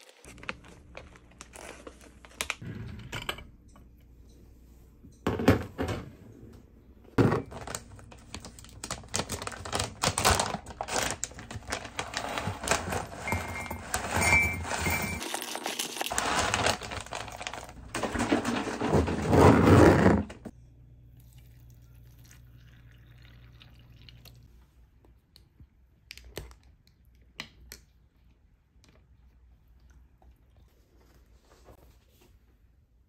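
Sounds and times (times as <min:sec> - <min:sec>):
milk pouring: 0:21.2 - 0:24.5.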